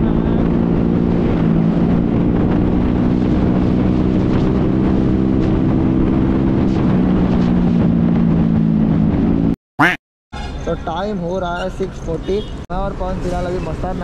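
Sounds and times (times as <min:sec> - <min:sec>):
wind rushing over microphone: 0:00.0 - 0:09.6.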